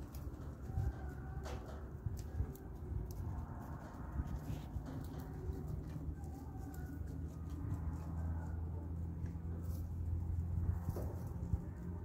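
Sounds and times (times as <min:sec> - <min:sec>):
puppy paws on gravel: 0:00.0 - 0:12.0.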